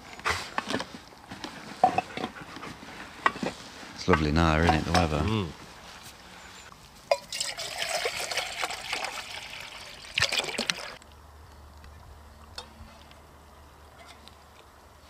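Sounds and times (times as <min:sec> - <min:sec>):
faint outdoor background: 0:00.0 - 0:15.0
water pouring into metal mug: 0:07.2 - 0:11.0.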